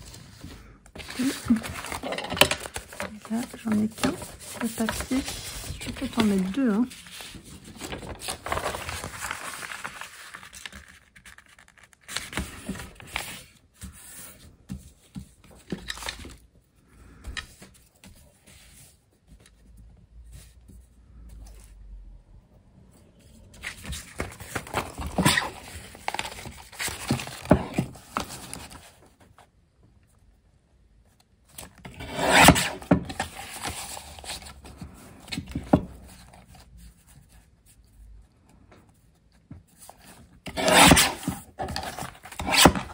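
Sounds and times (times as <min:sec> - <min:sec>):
paper rustling and rubbing: 0:00.0 - 0:16.4, 0:23.5 - 0:29.4.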